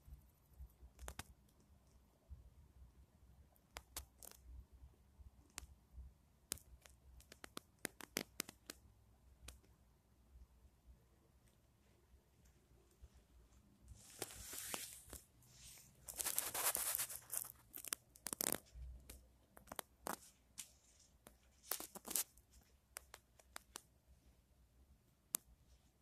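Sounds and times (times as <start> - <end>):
cat rustling and scratching fabric: 11.8 - 24.3.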